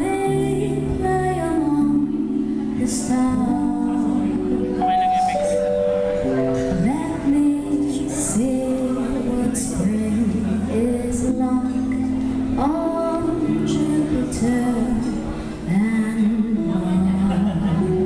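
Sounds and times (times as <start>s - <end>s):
woman singing: 0.0s - 4.7s, 6.5s - 18.0s
live band playing: 4.3s - 10.0s.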